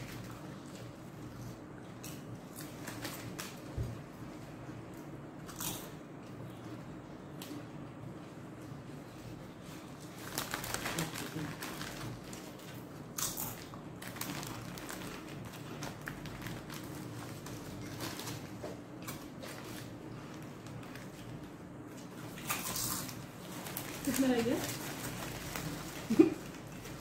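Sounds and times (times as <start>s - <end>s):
paper and plastic wrappers crinkling: 0.0s - 4.0s, 9.4s - 27.0s.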